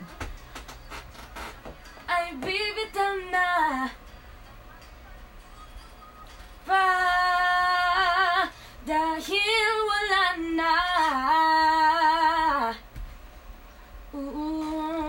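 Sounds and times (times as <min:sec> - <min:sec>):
woman singing with vibrato: 0:02.1 - 0:04.0, 0:06.6 - 0:12.9, 0:14.1 - 0:15.0.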